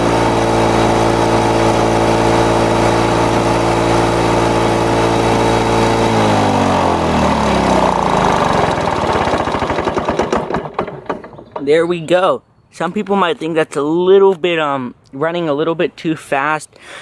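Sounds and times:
lawn mower engine running: 0.0 - 12.2.

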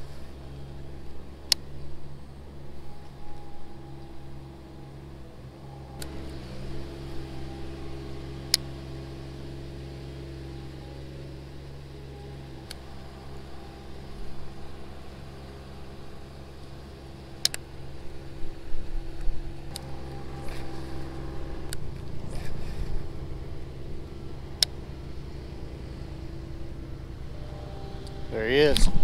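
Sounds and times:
lawn mower engine running: 0.0 - 29.0
sharp clicks: 17.4 - 17.6.

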